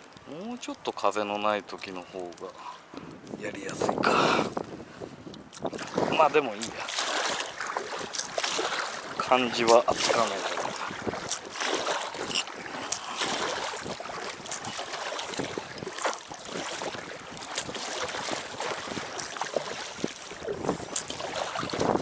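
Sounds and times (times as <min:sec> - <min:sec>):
water lapping against raft: 0:00.0 - 0:22.0
wind buffeting microphone: 0:02.9 - 0:22.0
small splashes and knocks: 0:05.4 - 0:22.0.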